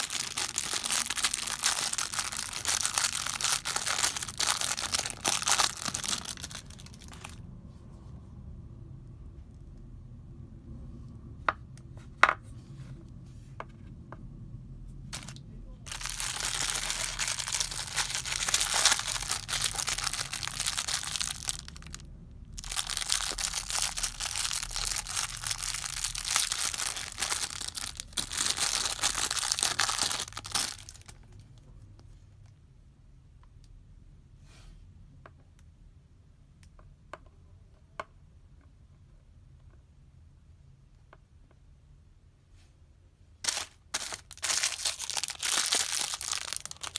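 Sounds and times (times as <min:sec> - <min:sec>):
plastic bag crinkling and tearing: 0:00.0 - 0:07.4, 0:15.2 - 0:31.4, 0:43.4 - 0:46.9.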